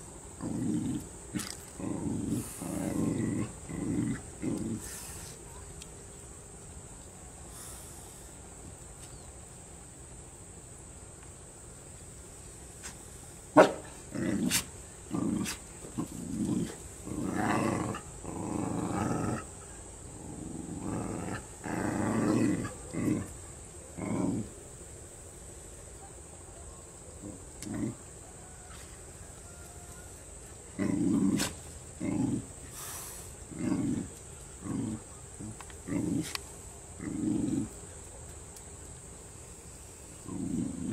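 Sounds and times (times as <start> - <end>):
dog growling and barking: 0.4 - 5.0, 13.5 - 24.5, 27.2 - 28.0, 30.7 - 32.6, 33.5 - 36.4, 37.0 - 37.8, 40.2 - 40.9.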